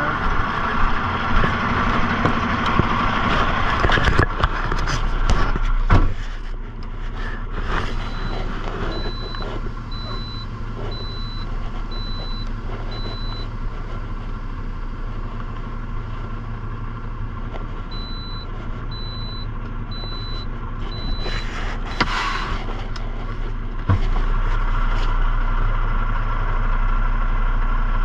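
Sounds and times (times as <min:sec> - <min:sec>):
vehicle engine running: 0:00.0 - 0:28.0
sharp knocks and clatter: 0:01.2 - 0:06.5
backup alarm beeping: 0:08.0 - 0:13.6, 0:17.9 - 0:22.2.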